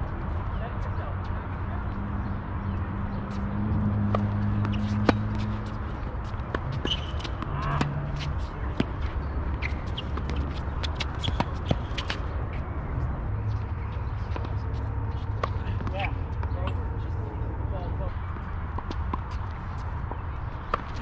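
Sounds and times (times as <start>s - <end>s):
shoes scuffing on court: 3.3s - 12.3s
tennis ball bouncing: 3.3s - 12.3s, 14.2s - 16.6s, 18.3s - 21.0s
rackets hitting tennis ball: 4.0s - 12.3s.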